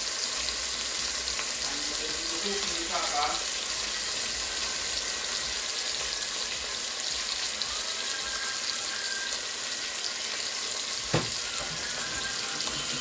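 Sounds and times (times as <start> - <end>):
fish sizzling in oil: 0.0 - 13.0
sharp knock: 11.1 - 11.4.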